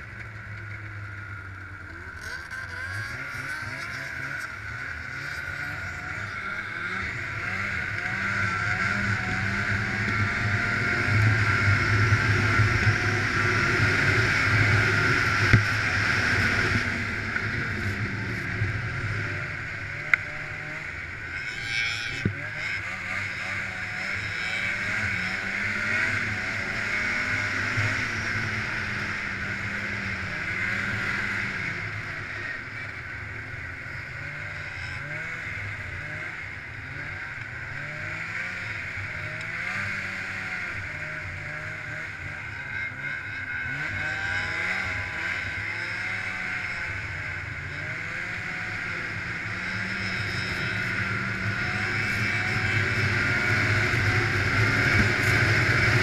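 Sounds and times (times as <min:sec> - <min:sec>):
snowmobile engine running: 0:00.0 - 0:56.0.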